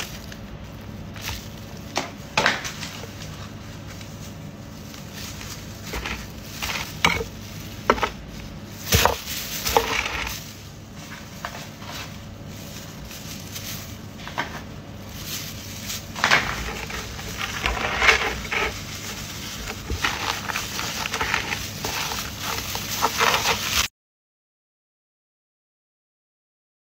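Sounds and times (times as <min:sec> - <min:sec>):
crusty bread crackling: 0:00.0 - 0:23.9.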